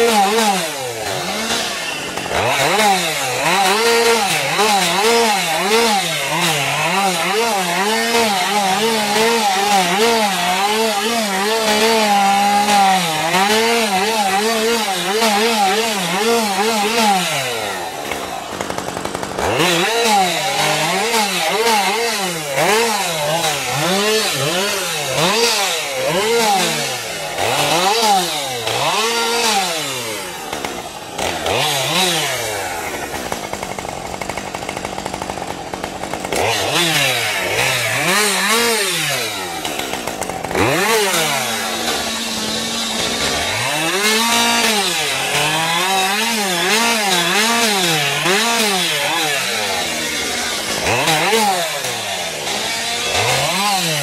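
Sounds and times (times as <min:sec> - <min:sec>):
chainsaw revving: 0:00.0 - 0:54.0.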